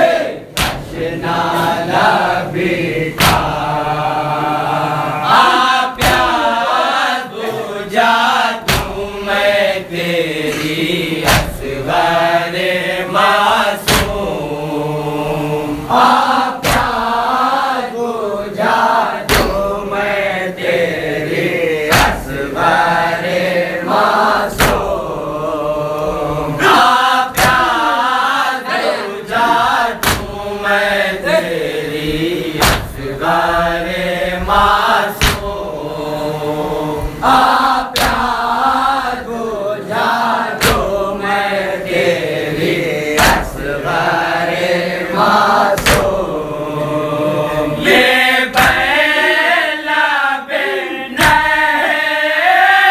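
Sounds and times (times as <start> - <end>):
men chanting in unison: 0.0 - 52.9
hands slapping chests: 0.6 - 1.0, 3.2 - 3.6, 10.5 - 11.6, 24.5 - 24.8, 27.3 - 27.8, 29.6 - 30.4, 32.6 - 33.0, 35.2 - 35.5, 38.0 - 38.4, 40.6 - 40.9, 45.8 - 46.2, 48.5 - 48.9, 51.2 - 51.5.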